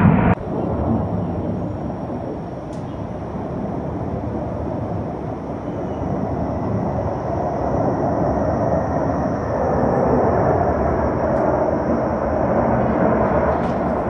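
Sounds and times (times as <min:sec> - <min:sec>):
jet aircraft rumble: 0:00.0 - 0:14.0.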